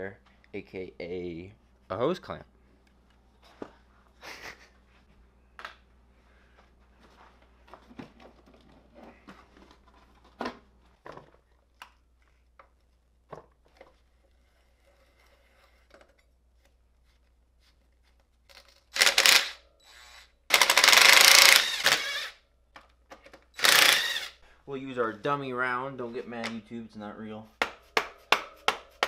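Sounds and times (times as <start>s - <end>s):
impact driver hammering: 20.5s - 22.2s.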